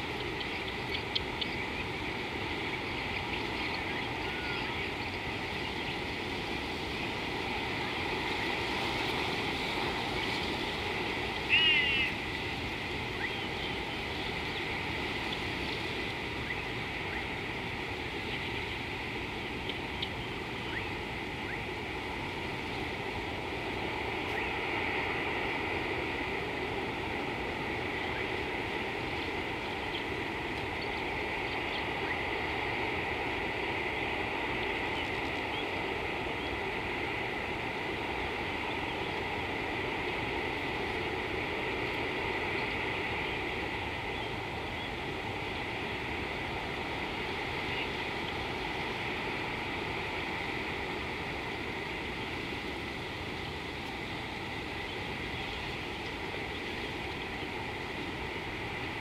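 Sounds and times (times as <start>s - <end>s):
constant hiss: 0.0s - 59.0s
faint chirps: 0.1s - 6.0s.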